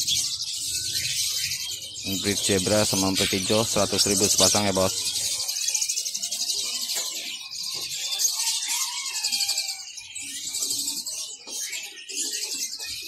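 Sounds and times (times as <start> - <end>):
caged birds chirping: 0.0 - 13.0.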